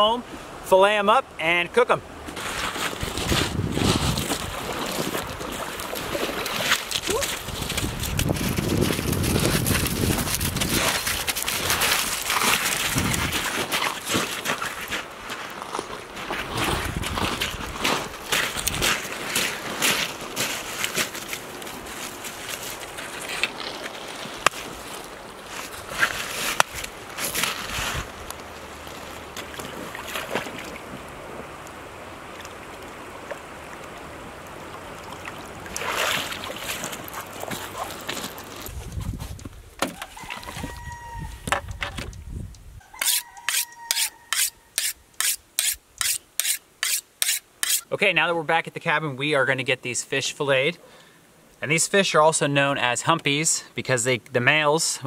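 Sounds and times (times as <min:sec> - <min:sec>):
footsteps crunching on gravel: 0:02.3 - 0:29.4, 0:36.4 - 0:39.5
knife on sharpening rod: 0:43.0 - 0:47.9.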